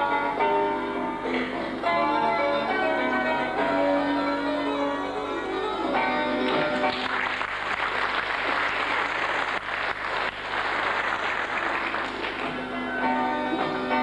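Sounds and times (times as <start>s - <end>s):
plucked-string backing music: 0.0s - 7.1s, 12.2s - 14.0s
audience applause: 6.4s - 13.0s.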